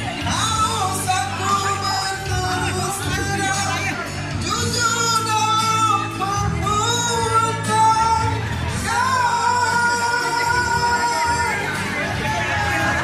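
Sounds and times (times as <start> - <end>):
musical accompaniment: 0.0 - 13.0.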